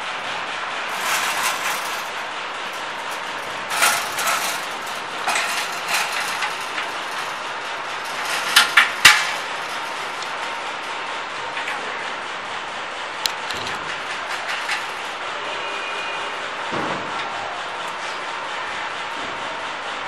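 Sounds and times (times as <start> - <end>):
steady background noise: 0.0 - 20.0
metallic clanks of steel parts: 0.8 - 12.2, 13.2 - 15.2.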